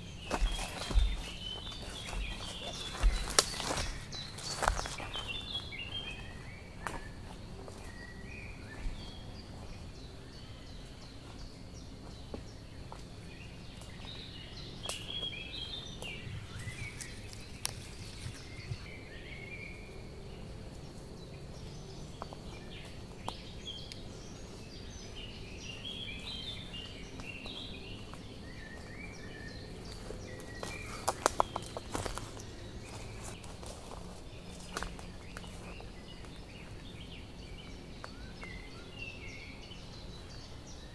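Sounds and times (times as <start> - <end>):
footsteps in undergrowth: 0.0 - 19.2, 20.7 - 39.4
birds chirping: 0.0 - 40.9
twigs snapping: 0.3 - 5.3, 14.8 - 15.3, 16.0 - 18.5, 30.4 - 32.4.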